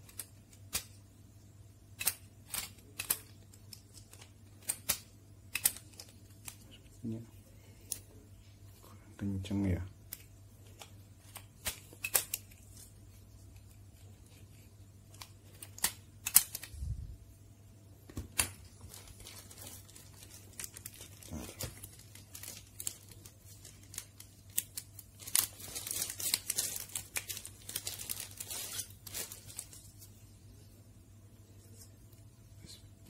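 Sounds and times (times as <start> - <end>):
crinkly rustling and clicking: 2.0 - 7.0, 18.3 - 30.2.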